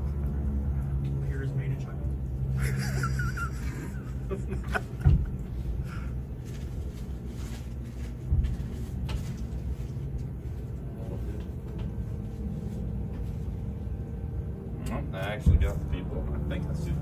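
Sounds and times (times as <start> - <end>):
muffled distant airshow rumble: 0.0 - 17.0
dull thump: 5.0 - 5.4.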